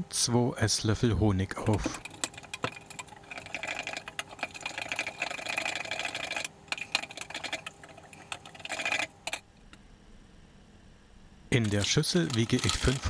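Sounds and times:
metal spoon stirring in a cup: 2.0 - 9.4, 11.6 - 13.0.

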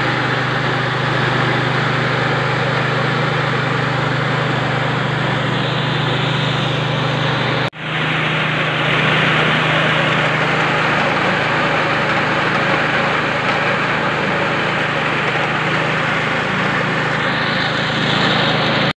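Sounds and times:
rice mill engine running: 0.0 - 19.0.

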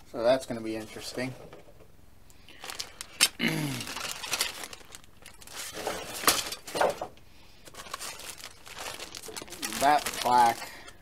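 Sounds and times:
plastic bags crinkling: 2.5 - 11.0.

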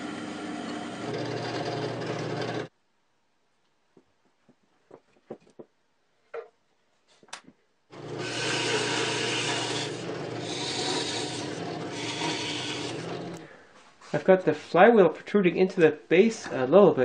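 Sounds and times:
cutter boring into plywood: 0.0 - 2.7, 7.9 - 13.4
drill press motor hum: 0.0 - 2.7, 7.9 - 13.4.

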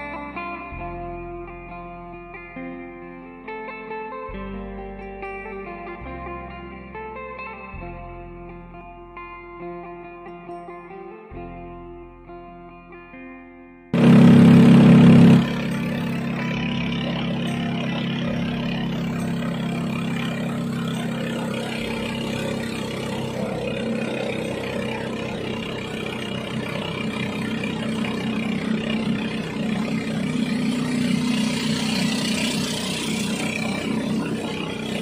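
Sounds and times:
boat engine running: 14.0 - 35.0.

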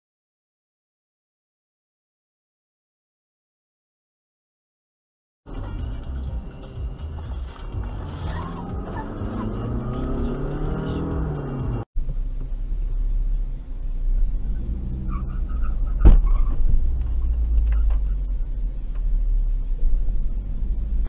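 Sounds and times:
car engine and road rumble: 5.5 - 21.0.

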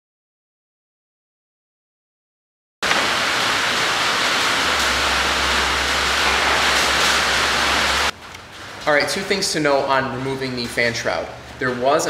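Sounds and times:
loud rushing hiss: 2.8 - 8.1
low hum: 2.8 - 8.5.

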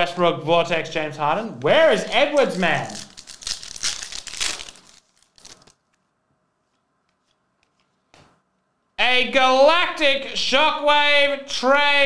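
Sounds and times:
wrapper tearing and crinkling: 2.0 - 6.0.

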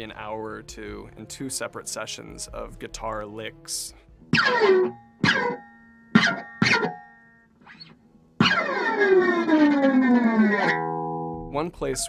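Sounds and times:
guitar note gliding down: 4.3 - 12.0
electric guitar notes bending down: 7.7 - 11.5.

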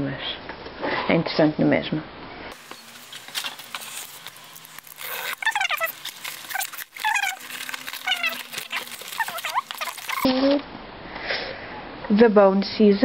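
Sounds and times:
high falling squeaks: 2.6 - 10.5
rustling in cardboard box: 2.6 - 10.5.

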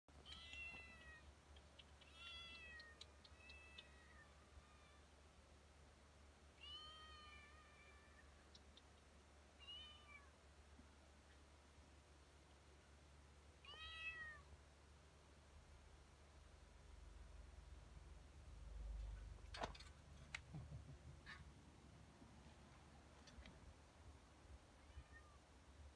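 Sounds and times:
cat meowing: 0.2 - 1.3, 2.0 - 5.1, 6.6 - 8.4, 9.6 - 10.4, 13.6 - 14.5, 24.8 - 25.4.

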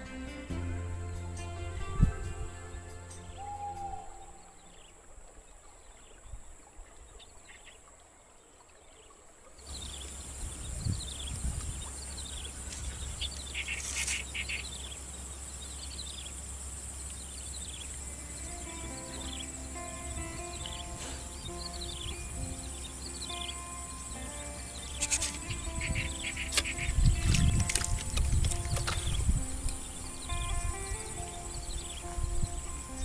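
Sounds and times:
small birds chirping: 1.1 - 33.0
high insect trill: 12.3 - 15.0, 15.9 - 33.0.

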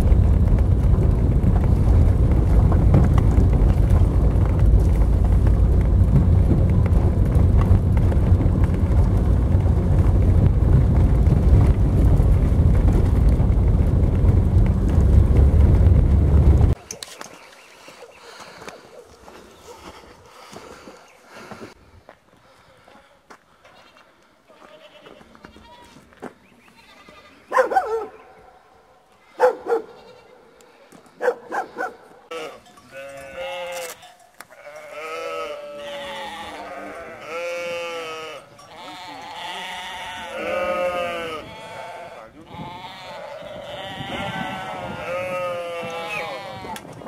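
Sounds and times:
goats bleating: 23.6 - 27.5, 29.8 - 30.5, 32.3 - 46.9.

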